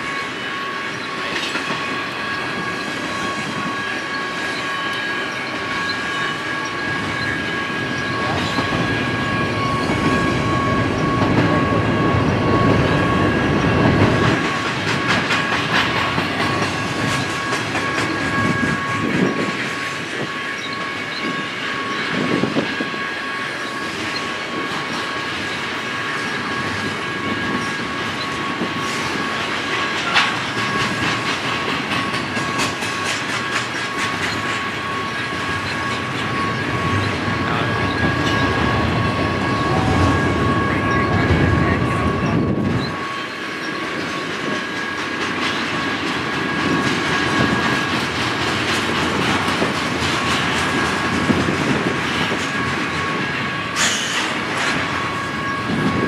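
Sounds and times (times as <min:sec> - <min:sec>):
high ringing tones: 0:00.0 - 0:14.5, 0:16.7 - 0:44.8
freight train rumble: 0:00.0 - 0:56.0
wheels clattering over rail joints: 0:04.6 - 0:21.2, 0:26.0 - 0:40.6, 0:42.8 - 0:56.0.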